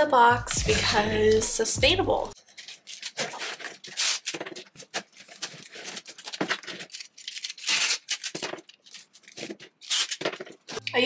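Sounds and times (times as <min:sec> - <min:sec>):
packing tape rasping off dispenser: 0:02.5 - 0:10.8.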